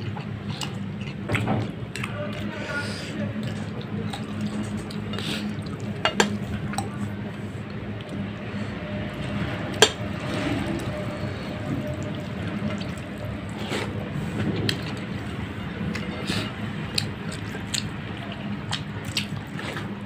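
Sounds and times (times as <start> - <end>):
steady low hum: 0.0 - 20.0
fingers squishing rice and curry: 10.0 - 20.0.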